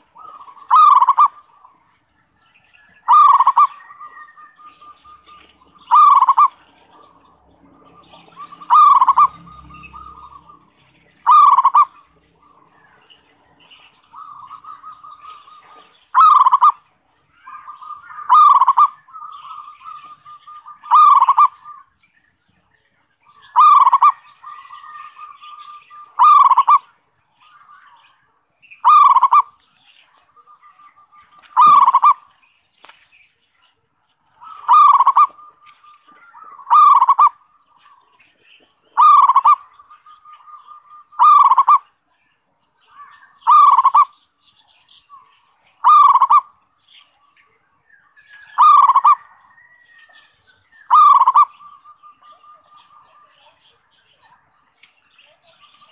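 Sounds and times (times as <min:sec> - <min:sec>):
dove cooing: 0:00.0 - 0:01.8, 0:03.0 - 0:13.1, 0:14.1 - 0:16.8, 0:17.4 - 0:21.8, 0:23.5 - 0:26.9, 0:28.8 - 0:29.6, 0:30.3 - 0:32.3, 0:34.4 - 0:37.8, 0:38.8 - 0:41.9, 0:43.4 - 0:44.2, 0:45.8 - 0:46.5, 0:48.4 - 0:49.9, 0:50.9 - 0:53.4.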